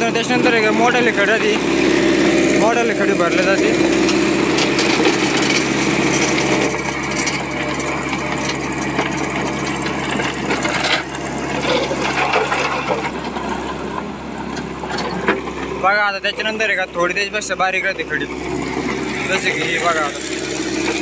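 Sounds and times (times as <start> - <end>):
diesel engine under load: 0.0 - 21.0
stones rattling in steel bucket: 1.0 - 13.3.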